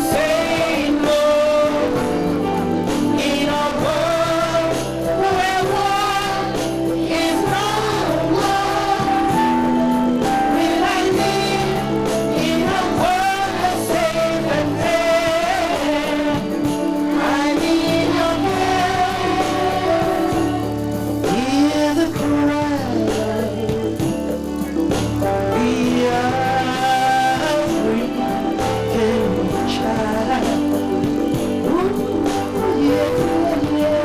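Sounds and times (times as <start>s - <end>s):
children's choir singing: 0.0s - 23.8s
instrumental backing: 0.0s - 34.0s
woman singing into microphone: 3.2s - 9.8s.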